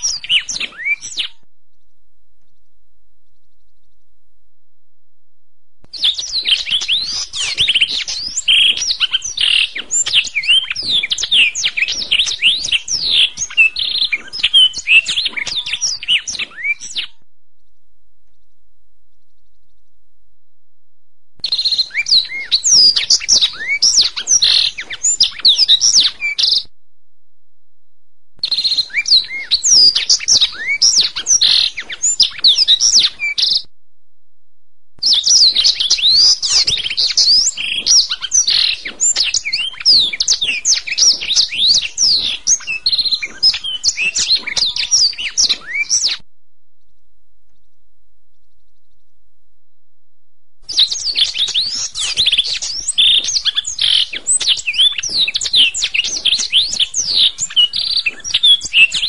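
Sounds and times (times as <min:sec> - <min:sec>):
canary singing: 0:00.0 - 0:01.8, 0:05.9 - 0:17.2, 0:21.4 - 0:26.7, 0:28.4 - 0:33.7, 0:35.0 - 0:46.2, 0:50.7 - 0:59.0.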